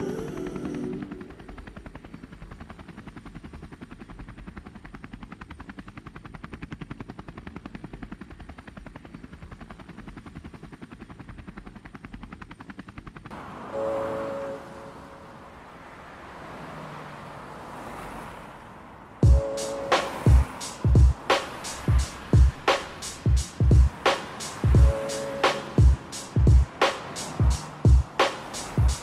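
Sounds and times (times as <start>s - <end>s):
helicopter rotor chopping: 0.0s - 18.1s, 19.1s - 29.0s
brief pitched tone: 13.7s - 15.4s, 19.2s - 20.4s, 24.8s - 25.7s.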